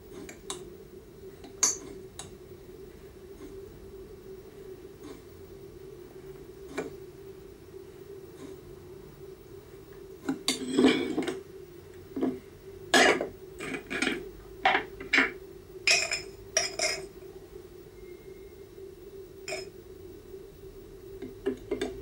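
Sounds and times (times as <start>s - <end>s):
steady low hum: 0.0s - 22.0s
dishes clinking and clattering: 15.9s - 17.1s.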